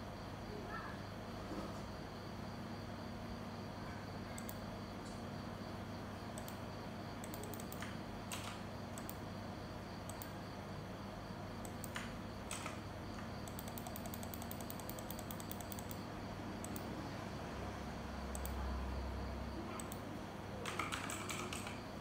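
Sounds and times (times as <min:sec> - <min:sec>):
low electrical hum: 0:00.0 - 0:22.0
computer keyboard typing: 0:04.4 - 0:04.6, 0:06.3 - 0:06.6, 0:07.2 - 0:09.2, 0:10.0 - 0:10.4, 0:11.6 - 0:16.9, 0:18.3 - 0:18.6, 0:19.7 - 0:22.0.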